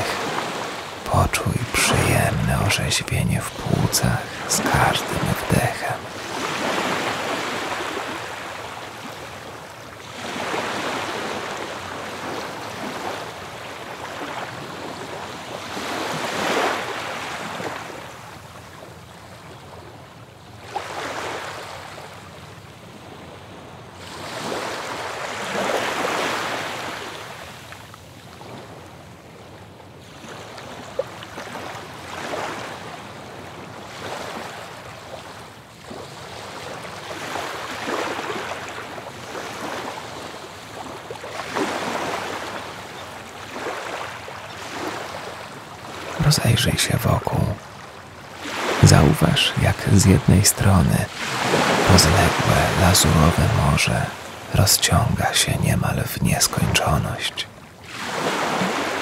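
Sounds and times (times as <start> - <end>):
ocean surf breaking: 51.1 - 53.1.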